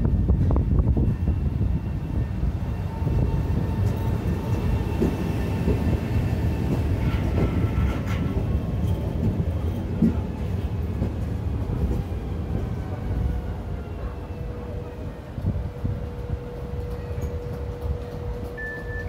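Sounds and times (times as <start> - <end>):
train wheels rumbling on rail: 0.0 - 19.0
wheels clicking over rail joints: 3.8 - 12.1.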